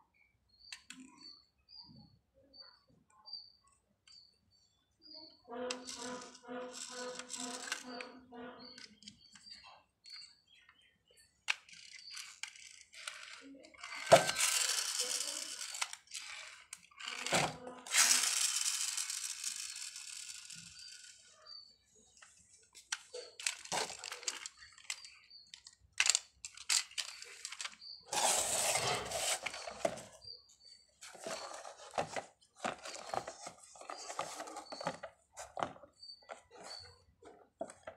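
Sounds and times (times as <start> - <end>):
plastic toy clicks and rattles: 5.7 - 9.4, 11.4 - 21.4, 22.8 - 30.2, 31.0 - 36.9.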